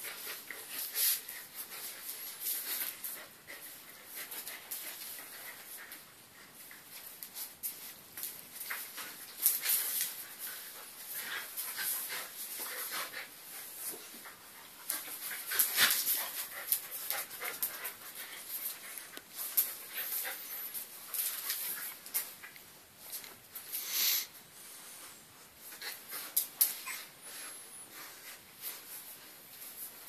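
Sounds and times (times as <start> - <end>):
dogs panting and huffing: 8.6 - 22.4.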